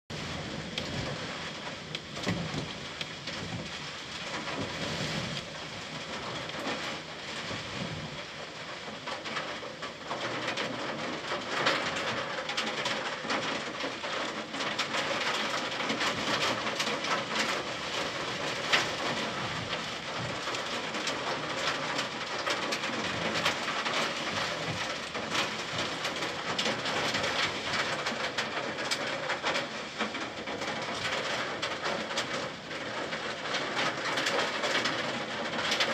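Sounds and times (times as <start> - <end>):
heavy rain: 0.1 - 35.9.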